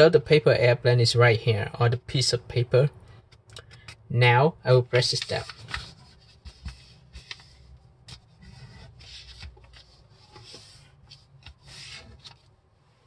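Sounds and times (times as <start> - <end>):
paper rustling and creasing: 5.0 - 12.6.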